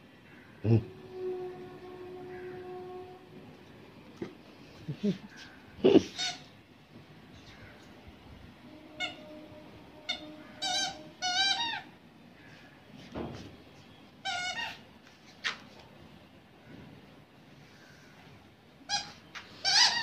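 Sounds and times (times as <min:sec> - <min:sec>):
squeaky toy squeaking: 0:06.1 - 0:06.5, 0:09.0 - 0:09.3, 0:10.0 - 0:11.9, 0:14.2 - 0:14.8, 0:18.9 - 0:20.0.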